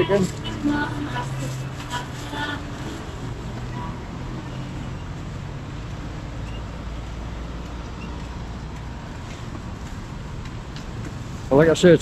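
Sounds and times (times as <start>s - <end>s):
low engine rumble: 0.0s - 12.0s
road traffic noise: 0.0s - 12.0s.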